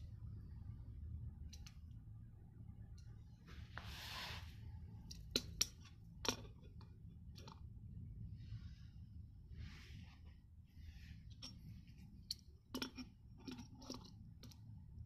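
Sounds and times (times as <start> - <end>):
low steady hum: 0.0 - 15.0
rustling slide: 3.5 - 4.6.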